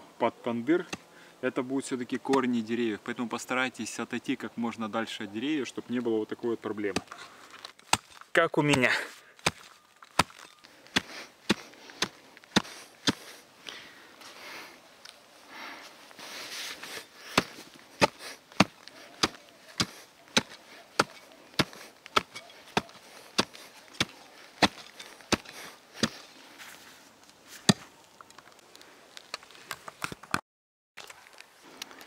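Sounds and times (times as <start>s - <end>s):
shovel scraping earth: 6.9s - 13.5s, 15.8s - 28.0s
shovel blade chopping roots: 7.8s - 13.4s, 16.8s - 26.3s.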